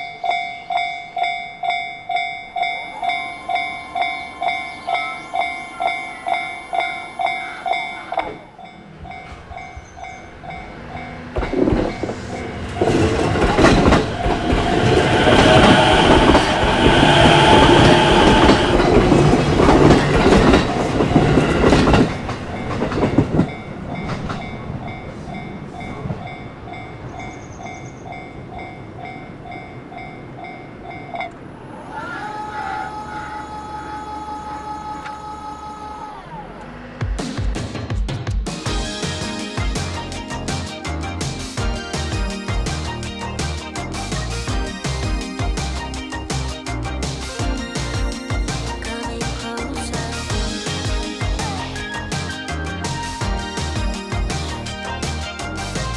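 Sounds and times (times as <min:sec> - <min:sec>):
level-crossing alarm ringing: 0:00.0 - 0:36.1
electric train passing: 0:00.0 - 0:37.9, 0:38.6 - 0:55.9.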